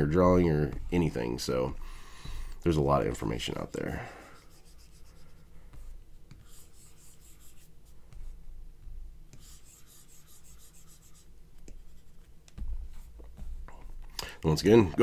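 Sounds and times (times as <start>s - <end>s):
low steady hum: 0.0s - 15.0s
stylus rubbing on glass screen: 4.2s - 14.0s.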